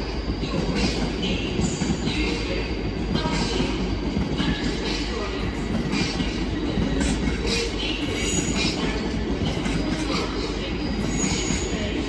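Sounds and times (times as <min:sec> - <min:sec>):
train wheels rumbling on rail: 0:00.0 - 0:12.0
high wheel squeals: 0:10.1 - 0:12.0.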